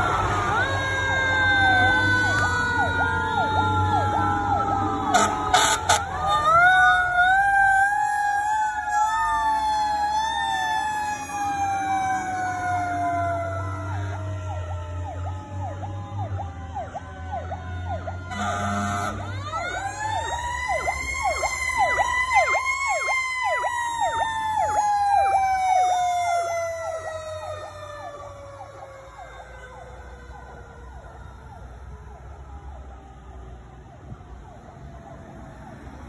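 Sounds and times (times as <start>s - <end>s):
air horn blast: 5.1s - 6.1s, 18.3s - 19.3s
electronic siren yelping: 16.2s - 31.7s.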